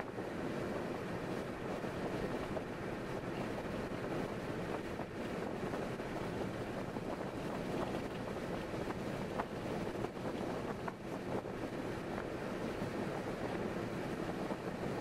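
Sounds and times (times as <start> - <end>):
car road and wind noise: 0.0 - 15.0.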